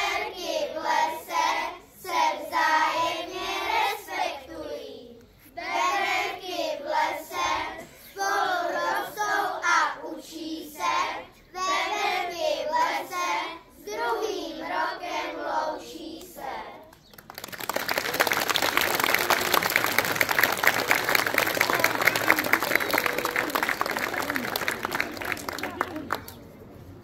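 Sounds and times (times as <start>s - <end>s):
audience applause: 17.1s - 26.4s.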